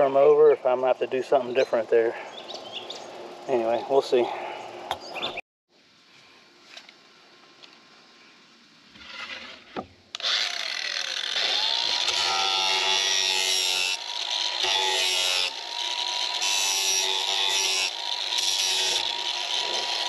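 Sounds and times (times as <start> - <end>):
angle grinder whining: 10.2 - 20.0
grinder sanding plywood grating: 10.2 - 20.0.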